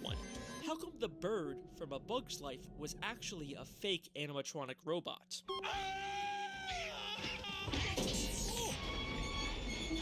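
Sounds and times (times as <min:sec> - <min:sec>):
film sound effects: 0:00.0 - 0:10.0
cartoon character screaming: 0:05.5 - 0:08.8.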